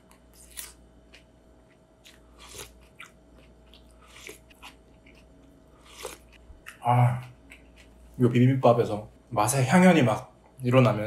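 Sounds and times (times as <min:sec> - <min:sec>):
chewing crunches: 0:00.0 - 0:08.2.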